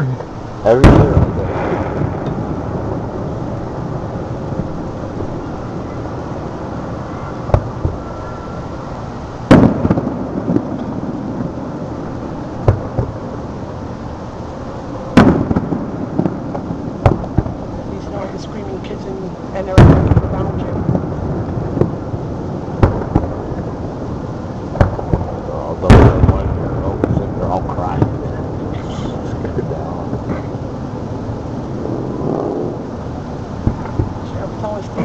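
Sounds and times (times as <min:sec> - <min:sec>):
distant fireworks booms: 0:00.0 - 0:35.0
faint fireworks pops: 0:00.2 - 0:02.6, 0:07.4 - 0:08.1, 0:09.4 - 0:13.2, 0:15.1 - 0:19.0, 0:19.6 - 0:23.9, 0:24.6 - 0:30.6, 0:33.6 - 0:35.0.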